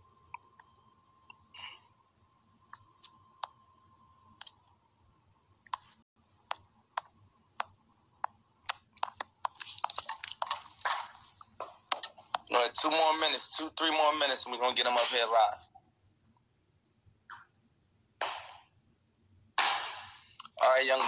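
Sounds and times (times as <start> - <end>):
sharp clicks and taps: 5.7 - 12.5.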